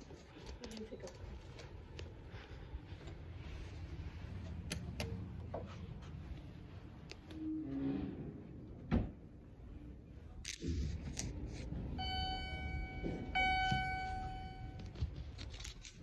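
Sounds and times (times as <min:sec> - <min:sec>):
high electronic beep tone: 0:12.0 - 0:14.9.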